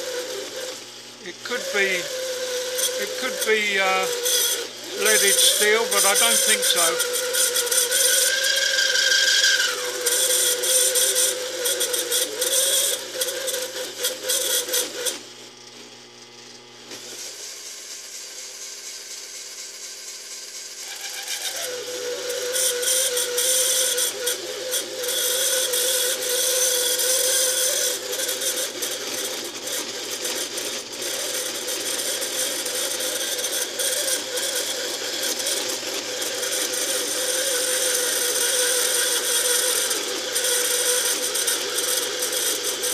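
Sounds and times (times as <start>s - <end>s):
lathe spindle running: 0.0s - 15.1s, 29.6s - 42.9s
harsh rattling metal cutting: 0.0s - 15.2s, 18.9s - 42.9s.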